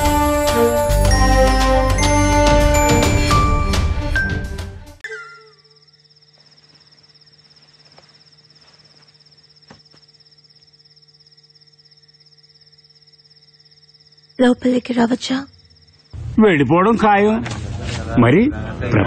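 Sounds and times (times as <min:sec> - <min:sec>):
crickets chirping: 0:05.0 - 0:17.8.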